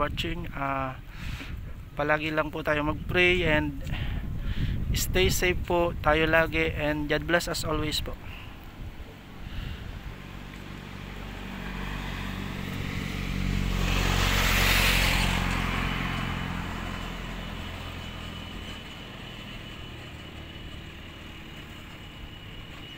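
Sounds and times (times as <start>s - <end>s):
vehicle passing by: 8.1s - 22.9s.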